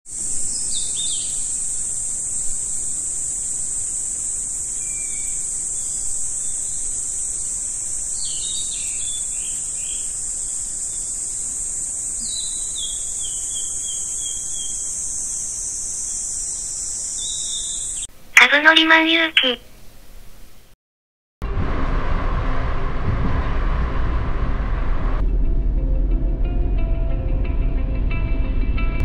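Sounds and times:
high-pitched insect chorus: 0.1 - 18.1.

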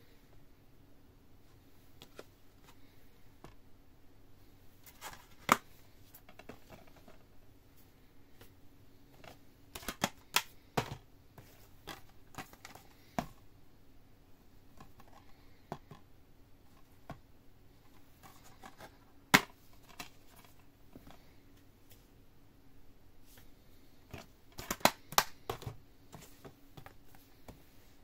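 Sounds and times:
faint steady hum: 0.0 - 28.0
plastic dvd cases clicking: 4.9 - 7.2, 9.2 - 11.0, 11.8 - 13.3, 18.2 - 21.2, 24.1 - 25.8.

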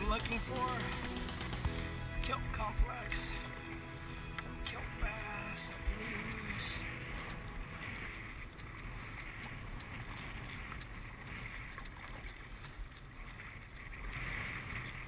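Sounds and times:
paddle splashes and drips: 0.0 - 15.0
water sloshing around kayak: 0.0 - 15.0.

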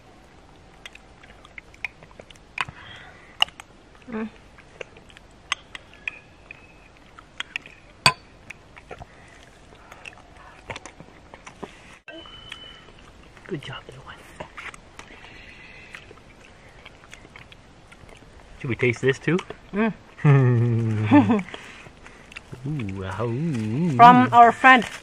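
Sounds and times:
soft eating sounds: 0.0 - 25.0
metal spoons clinking on ceramic bowls: 8.0 - 8.4.

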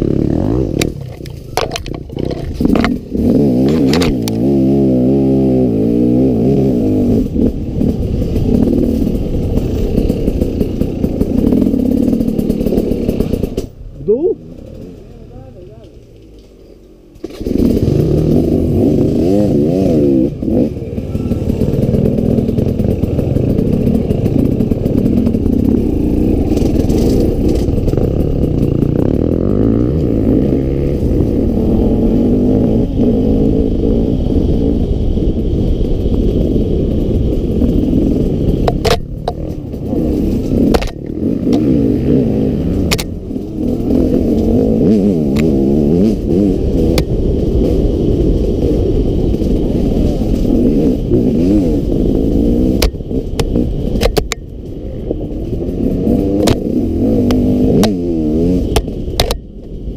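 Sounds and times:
dirt bike engine revving: 0.0 - 59.4
sharp knocks from bike: 38.6 - 39.7, 52.8 - 54.5, 58.7 - 59.5.

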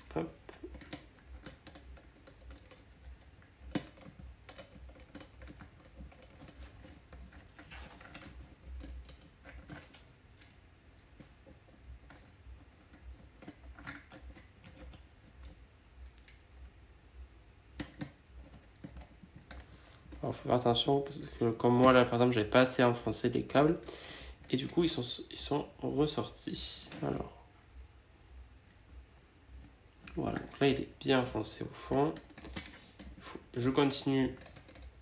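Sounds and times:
small clicks and taps of handling: 0.0 - 16.4, 17.7 - 20.2, 31.9 - 33.2, 33.9 - 35.0.

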